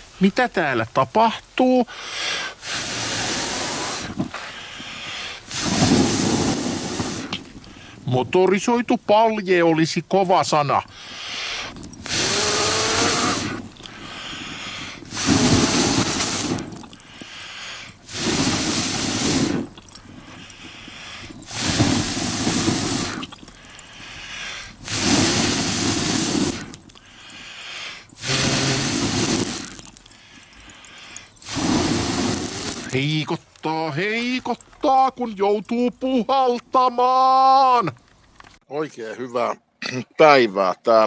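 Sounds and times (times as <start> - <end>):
breaths drawn in: 1.9 - 8.1, 10.7 - 36.1
person blowing hard: 2.0 - 4.5, 5.1 - 7.5, 11.1 - 33.0.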